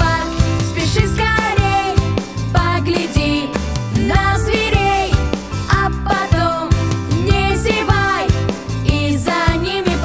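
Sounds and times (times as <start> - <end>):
upbeat children's pop song: 0.0 - 10.0.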